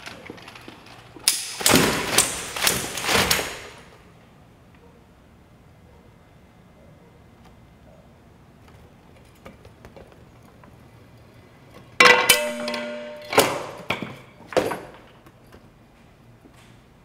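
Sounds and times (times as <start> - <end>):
loud snap with ringing tone: 12.0 - 13.9.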